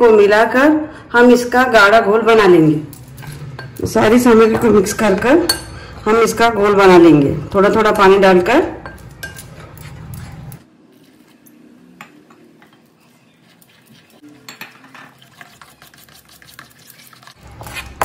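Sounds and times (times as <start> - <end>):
batter being stirred in bowl: 8.8 - 18.0.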